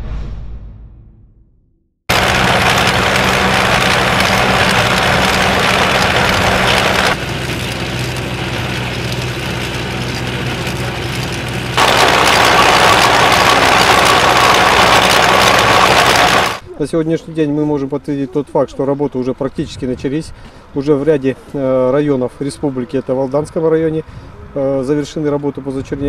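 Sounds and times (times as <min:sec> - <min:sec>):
ice saw grinding: 0:02.1 - 0:16.6
tractor engine running: 0:02.1 - 0:16.6.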